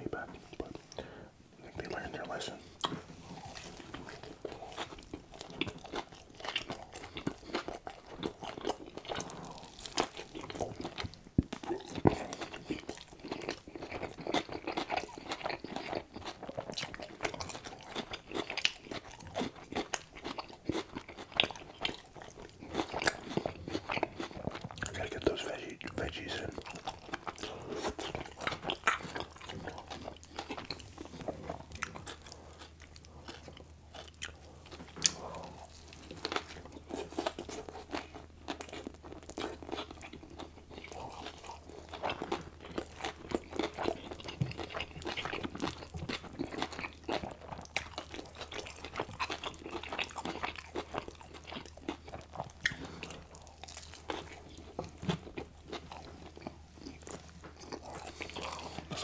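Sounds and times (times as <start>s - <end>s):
crunching and wet chewing: 1.7s - 59.0s.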